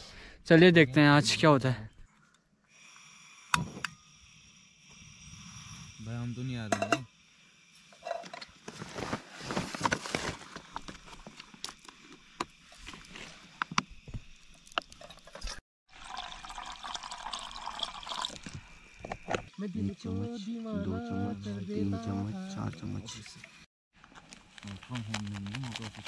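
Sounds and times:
water pouring into kettle: 14.6s - 19.4s.

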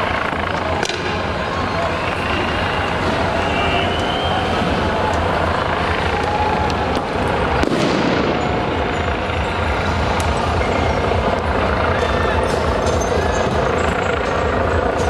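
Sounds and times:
riot din: 0.0s - 15.0s
sharp cracks: 4.0s - 8.8s
loud bang: 7.0s - 11.0s.

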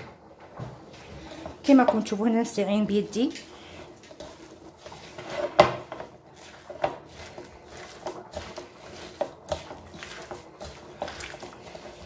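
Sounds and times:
wet squelches of kneaded meat: 2.6s - 12.0s.

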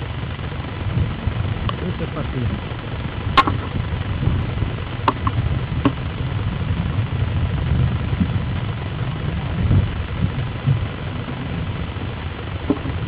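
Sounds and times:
powerboat engines rumbling: 0.0s - 13.0s
sharp clicks: 3.4s - 3.8s, 5.0s - 6.0s.

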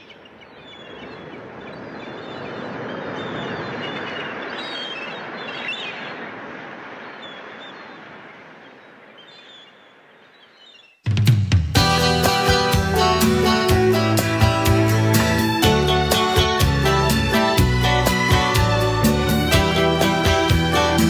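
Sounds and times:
birds chirping: 0.0s - 21.0s
rushing wash of noise: 0.7s - 9.2s.

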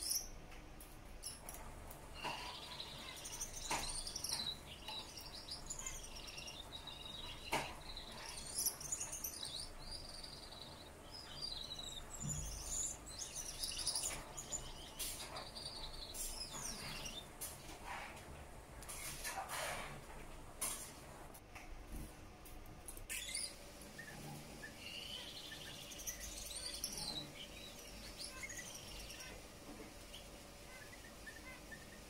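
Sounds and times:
finch singing buzzy warbles: 2.1s - 17.4s, 23.1s - 29.5s, 30.1s - 32.0s.

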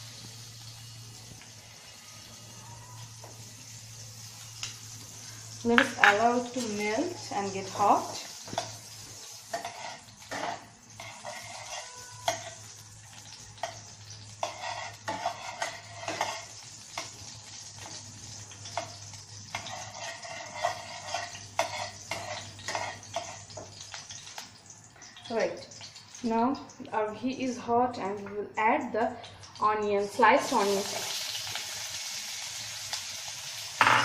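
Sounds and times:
ghee sizzling faintly: 0.0s - 34.0s
spatula scraping metal pan: 9.4s - 12.7s, 14.4s - 17.1s, 19.5s - 23.8s.

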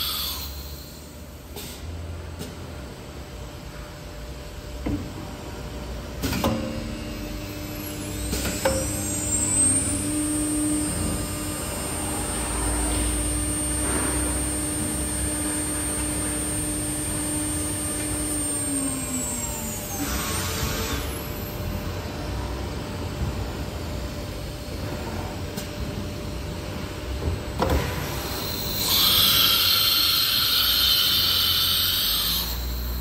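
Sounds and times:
low machine hum: 0.0s - 29.0s
router spindle whine: 6.9s - 22.0s, 28.1s - 33.0s.

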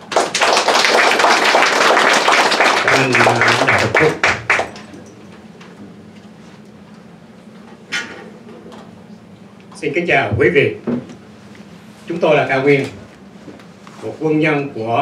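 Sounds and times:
audience applauding: 0.0s - 4.9s.

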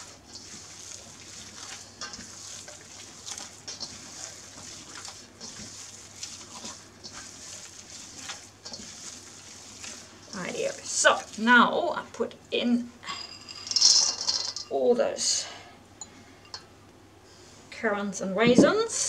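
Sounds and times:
dough squishing and slapping: 0.0s - 11.8s.

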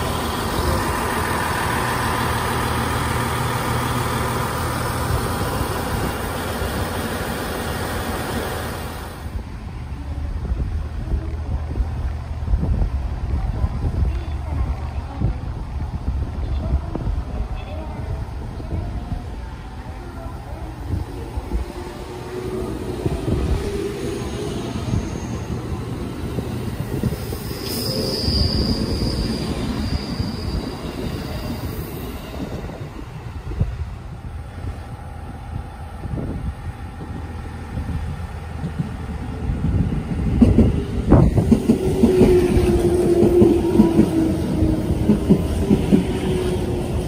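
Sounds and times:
train wheels rolling past: 20.6s - 47.0s
high squeal: 24.0s - 26.2s, 26.9s - 32.7s.

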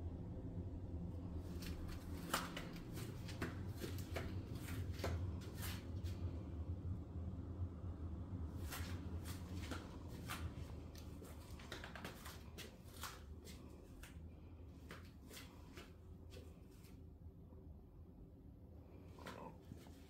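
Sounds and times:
low steady hum: 0.0s - 20.0s
footsteps on hard tile floor: 1.5s - 6.2s, 8.7s - 14.2s.

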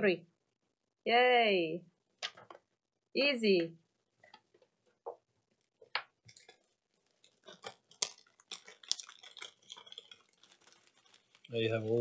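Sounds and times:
plastic bag crackling: 6.2s - 12.0s
paper rustling: 6.3s - 12.0s.

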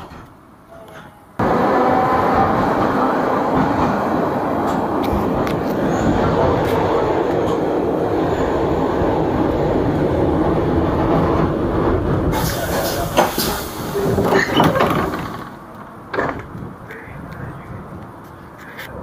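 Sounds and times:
tram rumbling on rails: 0.0s - 19.0s
brake hiss: 12.3s - 14.2s
clanks and knocks: 14.2s - 16.6s.

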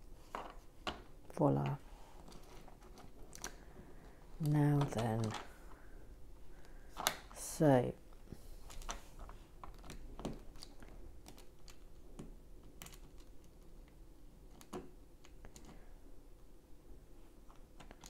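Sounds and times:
plastic bricks clicking and clattering: 0.2s - 5.6s.

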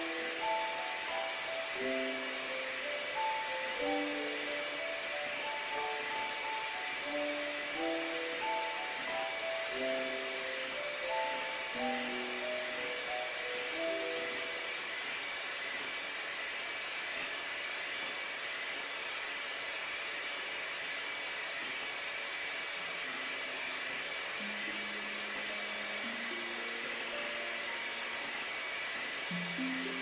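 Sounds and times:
soft background music: 0.0s - 15.1s, 23.3s - 30.0s
electric hand mixer whisking: 0.0s - 30.0s.

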